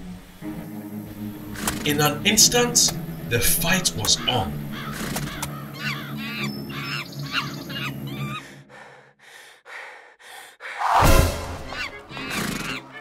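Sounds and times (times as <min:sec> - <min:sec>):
background music: 0:00.0 - 0:08.7, 0:10.8 - 0:13.0
squawking animal calls: 0:03.1 - 0:08.6, 0:11.6 - 0:13.0
loud hit: 0:10.8 - 0:12.1
short rushing noises: 0:10.8 - 0:12.7.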